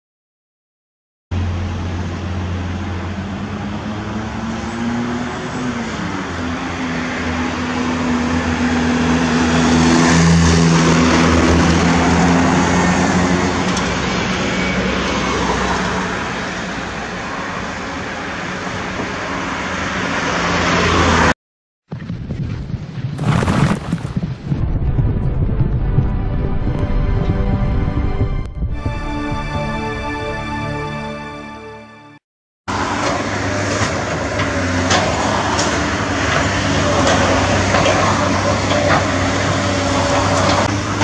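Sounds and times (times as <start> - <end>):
road traffic engine hum: 1.3 - 21.4, 32.7 - 41.0.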